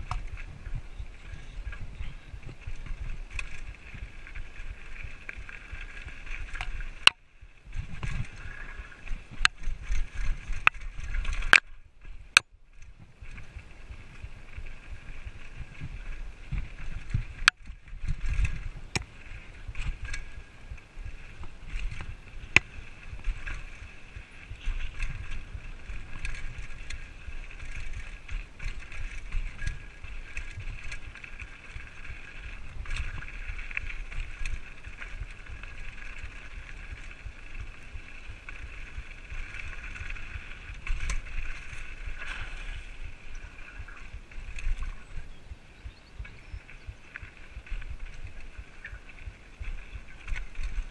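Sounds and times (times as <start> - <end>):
bike rattling: 0.0 - 50.9
bike tyres rolling on dirt: 0.0 - 50.9.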